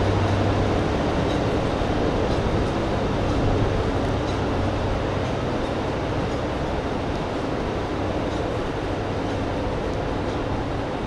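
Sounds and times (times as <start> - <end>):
diesel train engines droning: 0.0 - 11.0.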